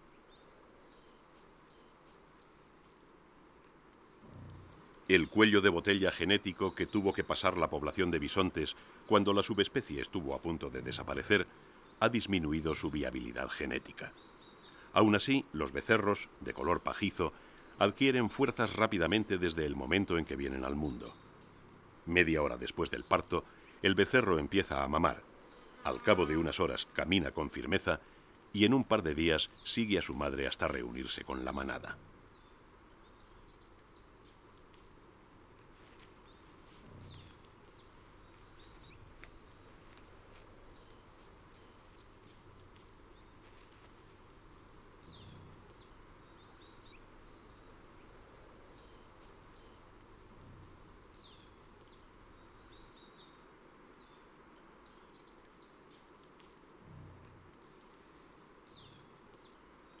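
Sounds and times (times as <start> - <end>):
low steady hiss: 0.0 - 60.0
small birds chirping: 0.0 - 60.0
soft low bumps: 4.2 - 5.1, 36.0 - 46.5.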